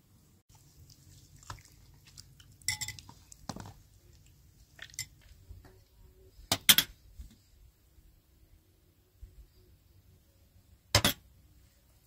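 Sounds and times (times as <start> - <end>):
kitchenware clinking and knocking: 11.0 - 11.3.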